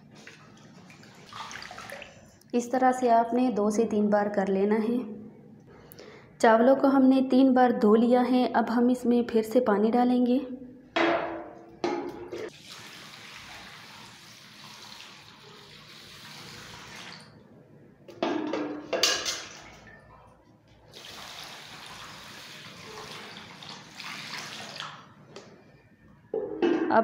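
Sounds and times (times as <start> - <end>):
water pouring into a metal bowl: 12.5 - 17.3.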